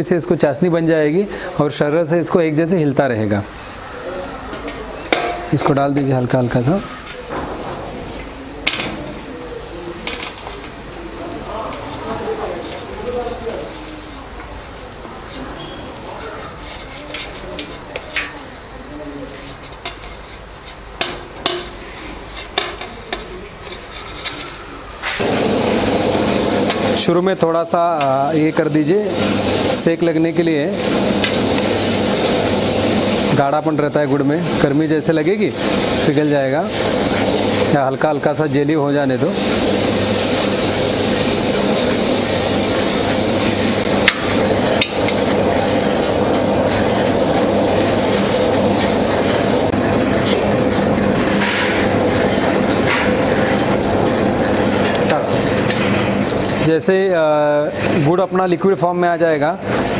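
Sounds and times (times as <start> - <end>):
plate tapping on steel: 5.1 - 5.8
stirring paddle motor hum: 28.0 - 33.5, 39.0 - 56.7.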